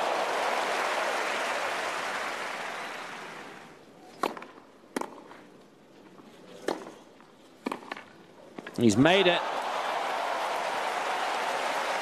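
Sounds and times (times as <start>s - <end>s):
crowd applause: 0.0s - 3.7s, 9.2s - 12.0s.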